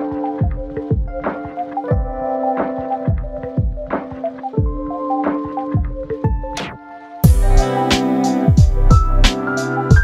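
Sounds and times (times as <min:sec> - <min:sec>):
deep kick-drum beat: 0:00.4 - 0:01.3, 0:01.9 - 0:02.2, 0:04.6 - 0:04.9, 0:05.8 - 0:06.6, 0:07.2 - 0:07.7, 0:08.5 - 0:09.3.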